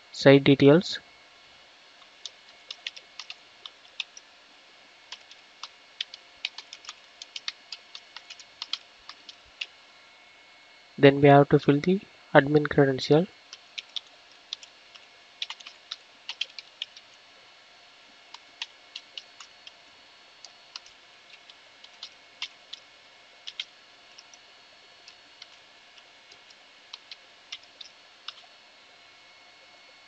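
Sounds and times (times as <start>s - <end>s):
computer keyboard typing: 2.0s - 4.2s, 5.1s - 9.7s, 13.5s - 17.2s, 18.3s - 19.8s, 20.4s - 24.4s, 25.0s - 28.5s.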